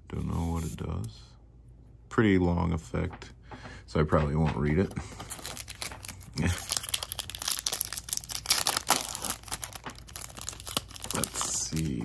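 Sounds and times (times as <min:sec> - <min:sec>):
foil wrapper tearing and crinkling: 0:05.2 - 0:12.0.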